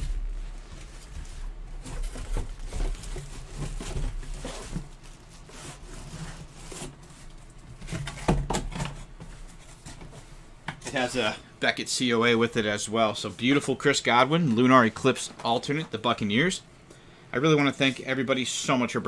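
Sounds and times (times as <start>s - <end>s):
cardboard scraping and bumping: 0.0s - 7.2s
plastic crinkling: 0.0s - 8.2s.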